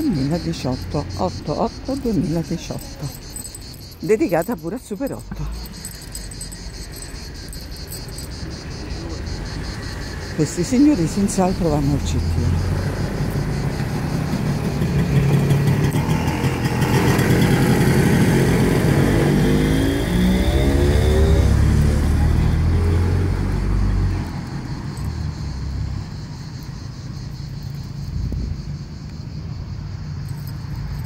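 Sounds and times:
car passing by: 0:11.0 - 0:26.3.

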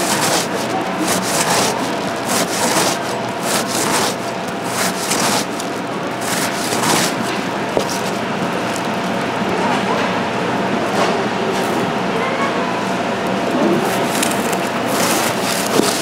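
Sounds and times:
scraping and rubbing strokes: 0:00.0 - 0:08.2, 0:14.0 - 0:16.0.

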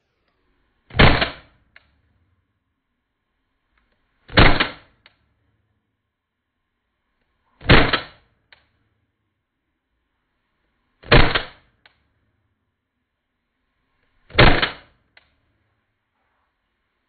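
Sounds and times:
airsoft pistol shots: 0:00.9 - 0:01.6, 0:04.3 - 0:05.0, 0:07.6 - 0:08.3, 0:11.0 - 0:11.6, 0:14.3 - 0:15.0.

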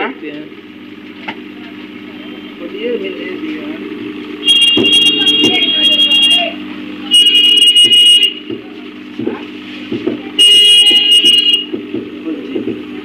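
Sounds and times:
steady low hum: 0:00.0 - 0:13.0
high-pitched electric horn blasts: 0:04.3 - 0:08.6, 0:10.4 - 0:11.8.

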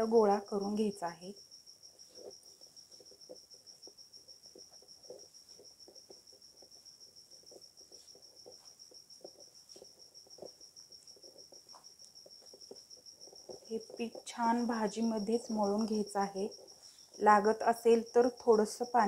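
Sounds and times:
cricket trill: 0:00.0 - 0:19.0.

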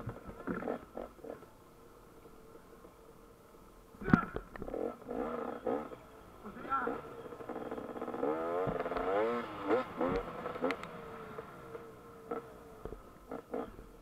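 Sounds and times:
dirt bike engine revving: 0:00.0 - 0:01.5, 0:04.1 - 0:14.0.

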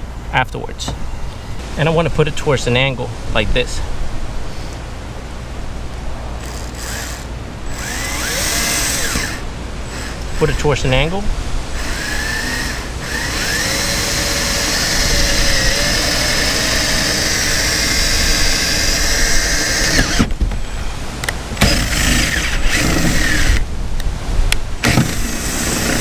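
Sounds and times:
cordless drill boring fiberglass: 0:06.4 - 0:10.6, 0:11.8 - 0:20.3, 0:21.6 - 0:23.6, 0:24.8 - 0:26.0.

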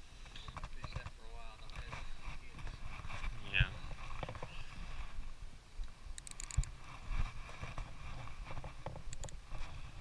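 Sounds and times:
wind rumble on microphone: 0:00.4 - 0:10.0
sharp clicks: 0:06.2 - 0:06.7, 0:09.1 - 0:09.4
camera handling noise: 0:06.2 - 0:06.8, 0:08.5 - 0:09.6.

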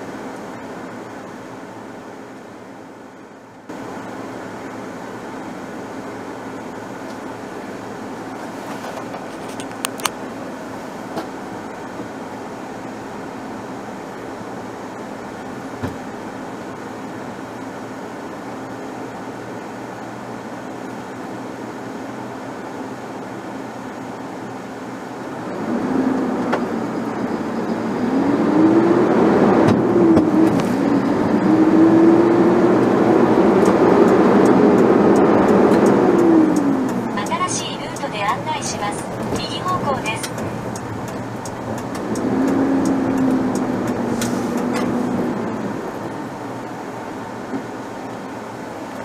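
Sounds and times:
car engine and tyres droning: 0:00.0 - 0:49.0
road noise: 0:00.0 - 0:49.0
vehicle engine accelerating: 0:25.2 - 0:49.0.

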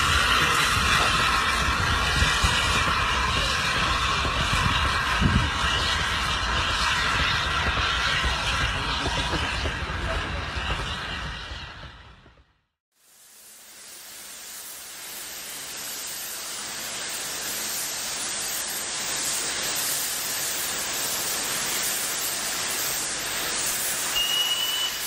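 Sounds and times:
steady hiss: 0:13.0 - 0:25.0.

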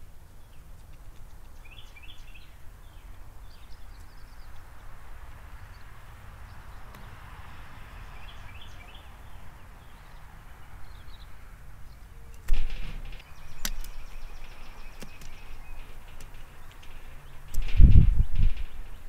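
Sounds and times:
faint distant bird chirps: 0:00.0 - 0:19.0
low wind rumble: 0:00.0 - 0:19.0
clicks and knocks on metal: 0:12.3 - 0:19.0.

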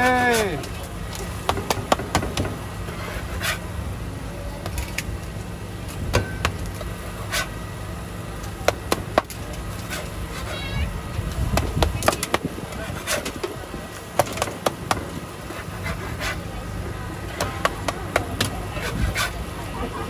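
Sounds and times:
steady low hum: 0:00.0 - 0:20.0
metal spatulas scraping on griddle: 0:02.9 - 0:03.6, 0:07.3 - 0:07.5, 0:09.8 - 0:10.6, 0:12.8 - 0:13.4, 0:15.5 - 0:16.4, 0:18.8 - 0:19.4.

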